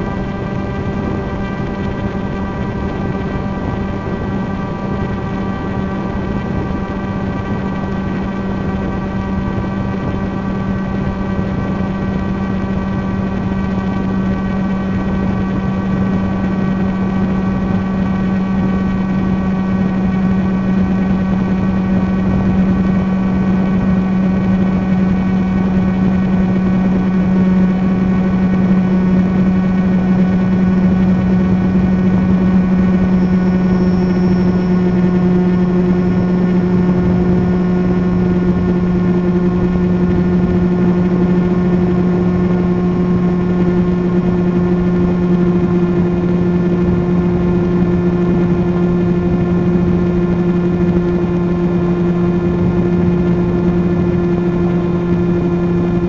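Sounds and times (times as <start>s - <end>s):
drone propellers buzzing: 0.0s - 56.0s.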